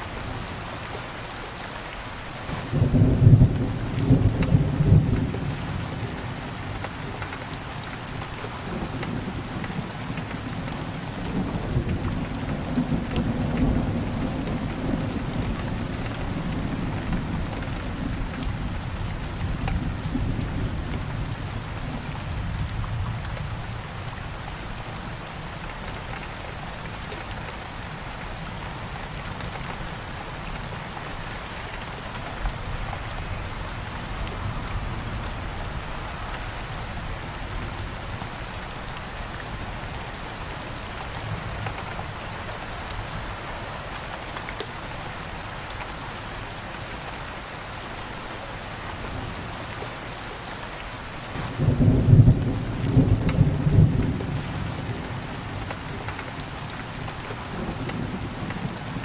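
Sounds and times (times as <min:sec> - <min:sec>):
heavy rain on window glass: 0:00.0 - 0:59.0
low rumble of thunder: 0:02.6 - 0:06.7, 0:08.3 - 0:24.4, 0:51.3 - 0:59.0.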